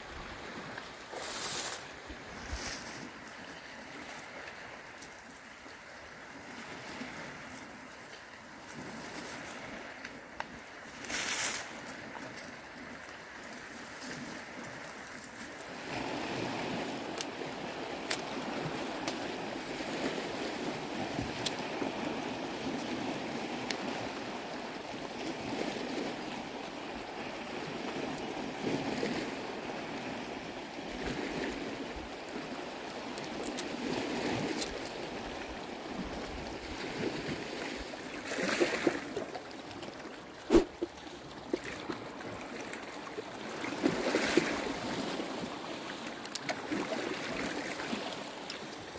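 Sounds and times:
wind: 0.0 - 48.9
waves washing against rocks: 8.6 - 30.1.

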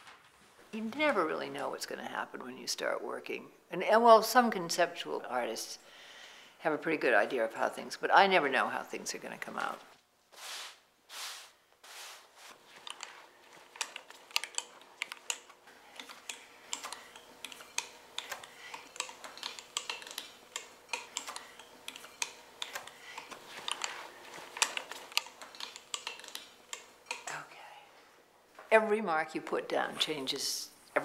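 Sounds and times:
brushing strokes: 10.3 - 14.8.

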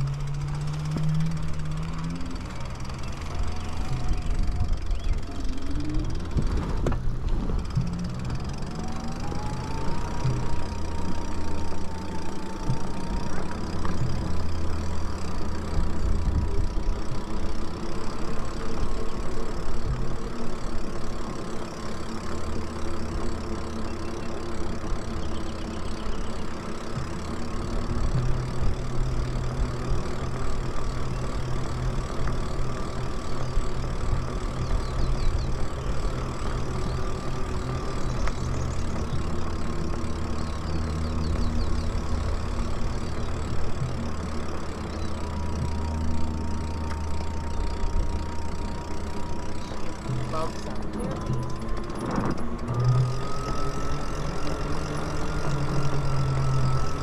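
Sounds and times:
electric motor whine: 0.0 - 57.0
tyres on concrete path: 0.0 - 57.0
wind rumbling on microphone: 3.7 - 8.4.

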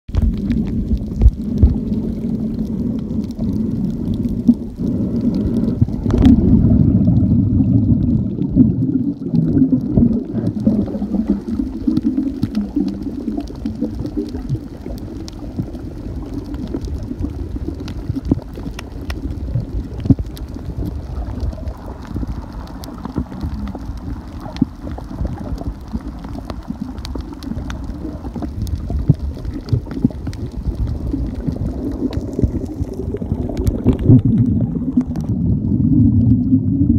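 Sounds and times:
underwater rumble and gurgle: 0.1 - 36.9
faint clicks: 9.2 - 35.3.

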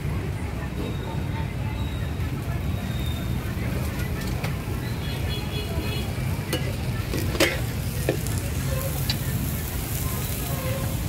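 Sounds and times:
food frying in a pan: 2.2 - 11.0
utensils clinking: 6.5 - 8.3.

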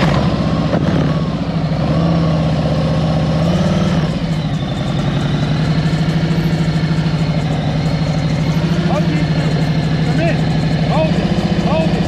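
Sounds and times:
motorcycle engine idling: 4.0 - 12.0.

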